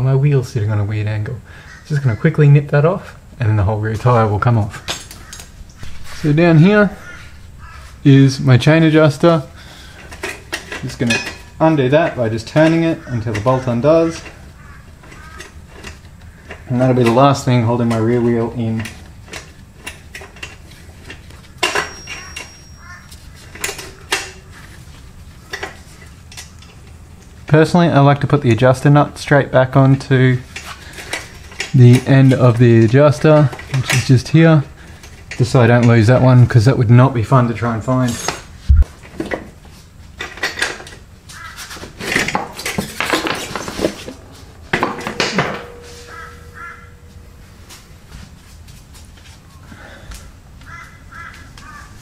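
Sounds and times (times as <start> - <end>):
metal parts clinking and scraping: 9.9 - 11.6, 18.6 - 24.6, 38.0 - 38.5, 40.2 - 41.0, 42.0 - 47.3
spanner clanking on metal: 10.0 - 11.6, 18.6 - 24.4, 44.7 - 47.4.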